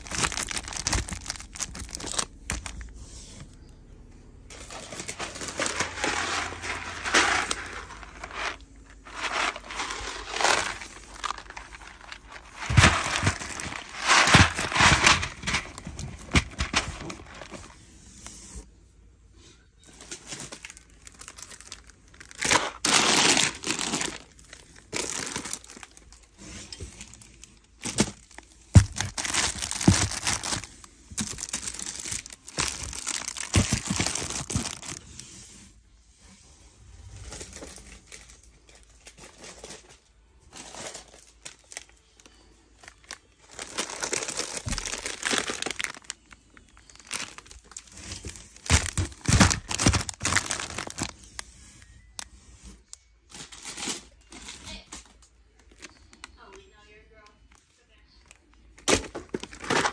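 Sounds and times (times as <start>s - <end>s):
cardboard rustling: 0.0s - 3.6s, 4.5s - 18.5s, 19.9s - 35.5s, 40.6s - 54.5s
plastic wrappers crinkling: 0.0s - 3.6s, 4.5s - 18.5s, 19.8s - 35.4s, 37.2s - 59.9s
boxes knocking together: 4.7s - 17.7s, 27.8s - 35.0s, 48.2s - 51.1s.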